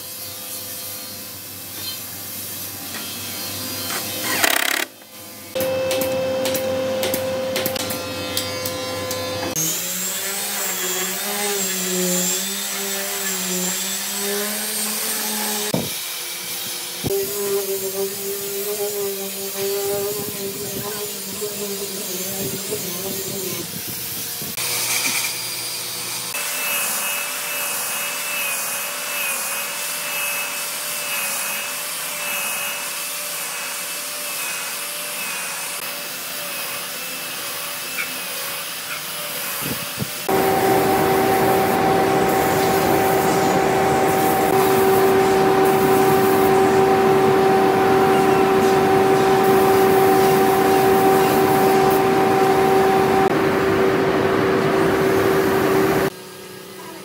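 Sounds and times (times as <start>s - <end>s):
power tool whine and grinding: 0.0s - 56.8s
machine humming: 4.4s - 9.5s, 40.3s - 56.1s.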